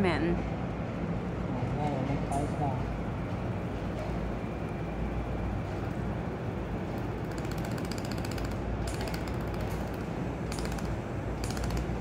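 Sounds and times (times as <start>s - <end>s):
low machine hum: 0.0s - 12.0s
rapid machine clicking: 6.9s - 12.0s.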